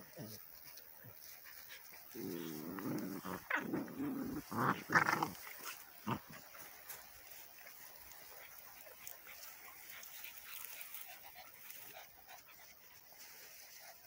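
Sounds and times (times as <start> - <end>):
puppies growling: 1.8 - 7.4.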